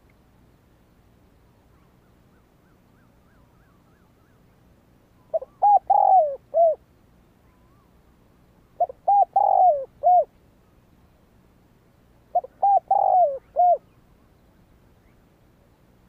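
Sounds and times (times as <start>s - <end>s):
dove cooing: 5.3s - 6.8s, 8.8s - 10.3s, 12.3s - 14.0s.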